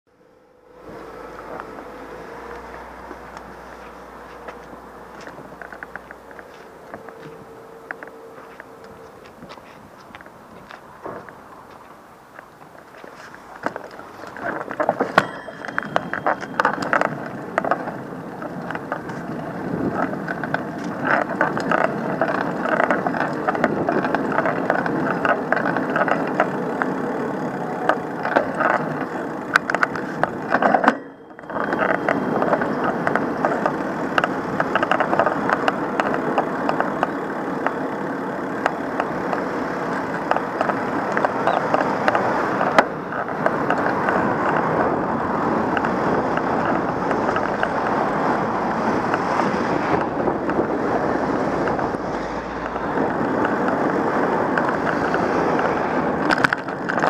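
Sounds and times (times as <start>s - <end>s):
vehicle rattling as it moves: 0.1s - 57.0s.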